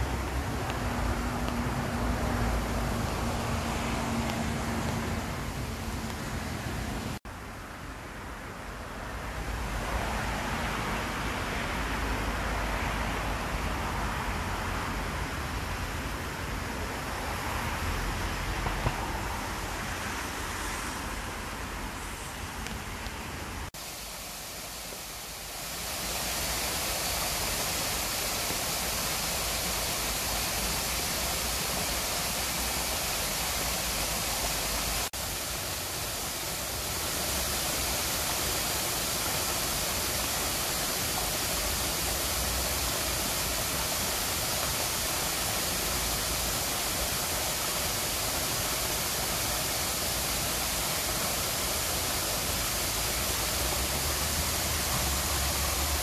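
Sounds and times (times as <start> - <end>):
rain falling: 0.0 - 8.2, 22.6 - 56.0
waterfall cascading into pond: 0.0 - 56.0.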